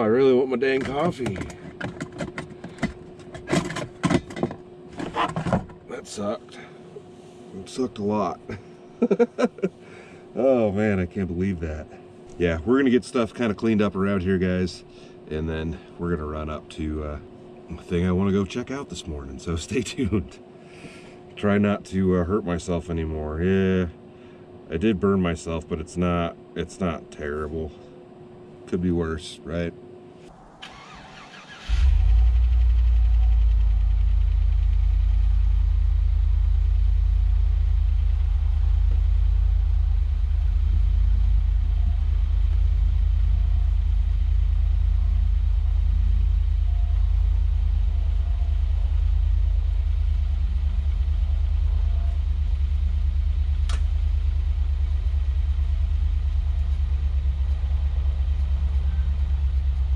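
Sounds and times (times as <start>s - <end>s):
vehicle driving rumble: 30.2s - 59.9s
brief click: 53.7s - 53.9s.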